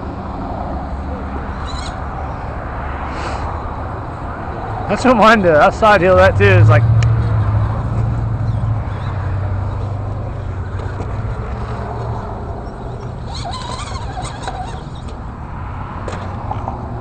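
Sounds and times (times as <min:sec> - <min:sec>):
short squeaks: 0:01.6 - 0:02.0, 0:10.7 - 0:15.2
toy car electric motor and gears: 0:12.7 - 0:15.2.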